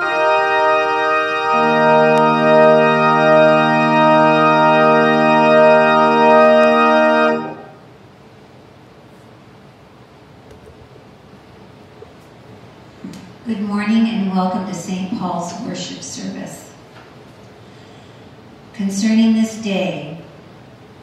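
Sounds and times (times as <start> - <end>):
low bass organ note: 0.0 - 7.8
church organ chords: 0.0 - 7.9.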